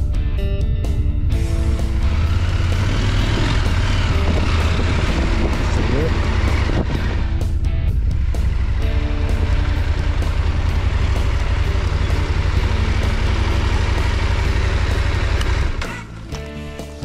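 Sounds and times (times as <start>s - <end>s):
motorcycle engine rumble: 0.0s - 17.0s
wind noise: 2.8s - 8.5s.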